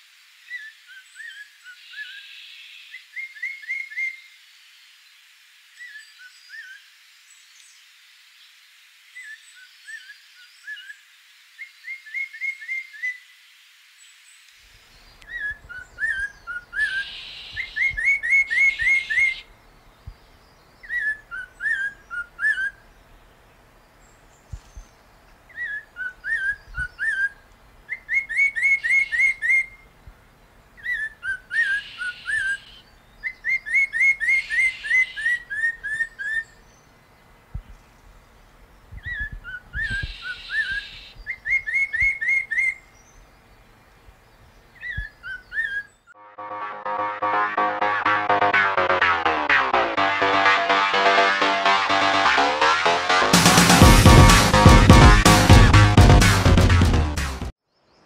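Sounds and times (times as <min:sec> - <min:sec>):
bird singing whistled phrases: 0:15.3 - 0:19.4, 0:39.0 - 0:42.8.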